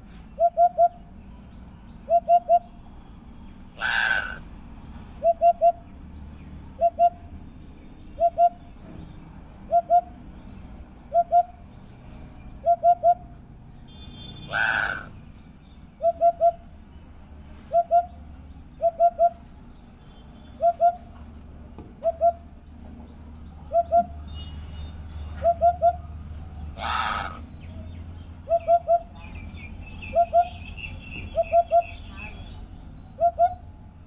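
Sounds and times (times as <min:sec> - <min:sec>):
hoopoe low hoots: 0:03.8 - 0:04.4, 0:14.5 - 0:15.1, 0:26.8 - 0:27.4.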